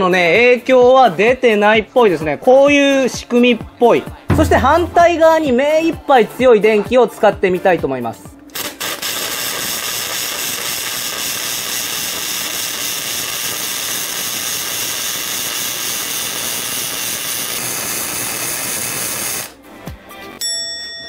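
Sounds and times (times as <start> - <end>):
welding arc: 8.5 - 19.6.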